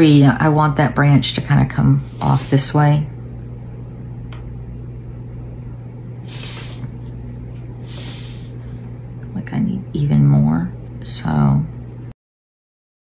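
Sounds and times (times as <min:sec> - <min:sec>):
low electrical hum: 0:00.0 - 0:12.2
short soft hisses: 0:06.3 - 0:07.0, 0:07.8 - 0:08.6.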